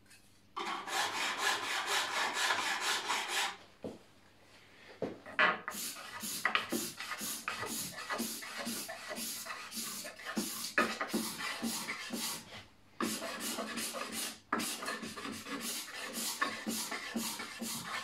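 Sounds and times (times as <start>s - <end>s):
carving blade scraping wood: 13.0s - 18.0s.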